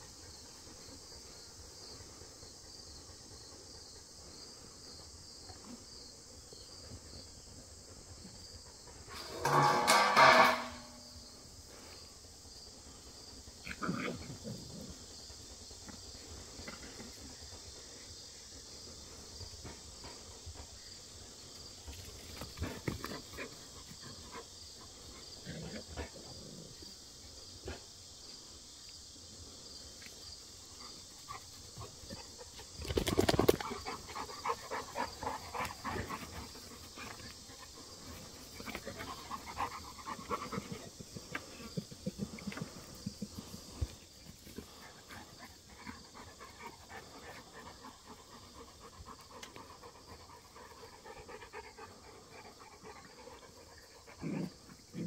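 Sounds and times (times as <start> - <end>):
dogs playing: 18.8 - 26.9, 30.7 - 55.0.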